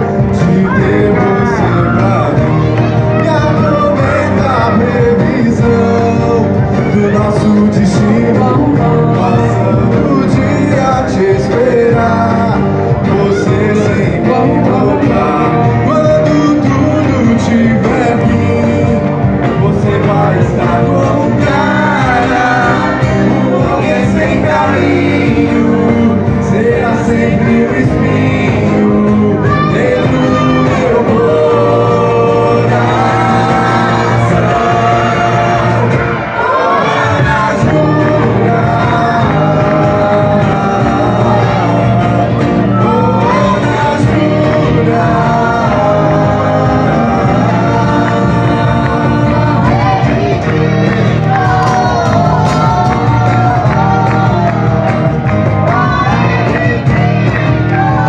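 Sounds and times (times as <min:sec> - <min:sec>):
bass guitar: 0:00.0 - 0:58.0
electric guitars: 0:00.0 - 0:58.0
keyboard: 0:00.0 - 0:58.0
person singing: 0:00.0 - 0:58.0.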